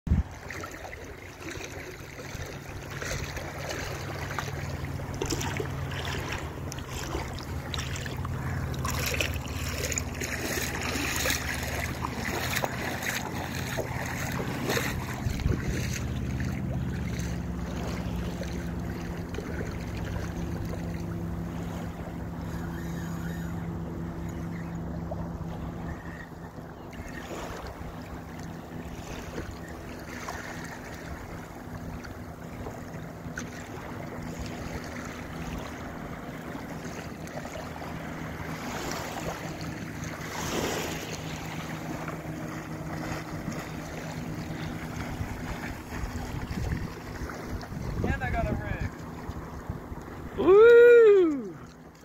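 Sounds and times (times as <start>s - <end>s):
wind buffeting microphone: 0.1s - 0.6s, 5.1s - 23.5s, 41.5s - 50.4s
shallow water lapping: 0.1s - 52.0s
steady low hum: 0.1s - 52.0s.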